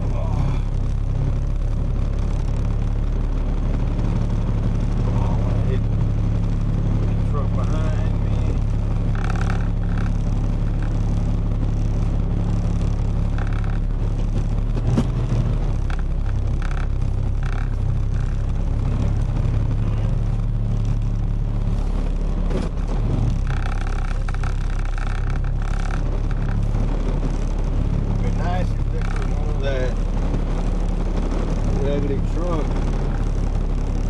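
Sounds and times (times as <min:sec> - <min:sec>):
truck engine drone and road noise: 0:00.0 - 0:34.0
knocks and rattles: 0:07.7 - 0:34.0.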